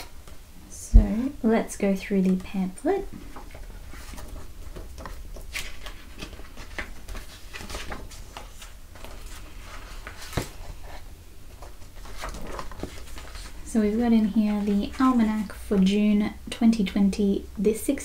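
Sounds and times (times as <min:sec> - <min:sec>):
faint low hum: 0:00.0 - 0:18.0
paper pages rustling: 0:03.3 - 0:15.9.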